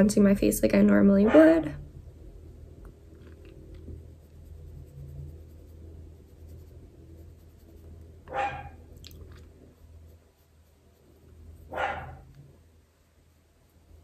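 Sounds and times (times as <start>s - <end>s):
low steady hum: 0.0s - 14.0s
dog barking: 8.3s - 8.8s, 11.7s - 12.3s.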